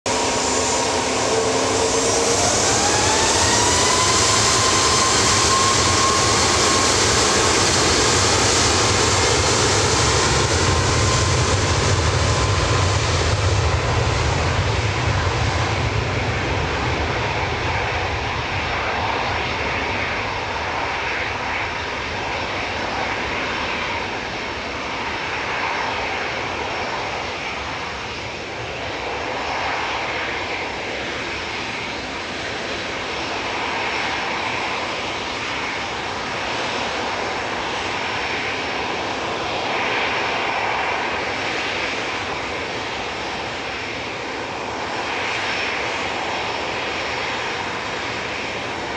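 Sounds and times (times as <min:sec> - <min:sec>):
jet engines at take-off: 0:00.0 - 0:48.9.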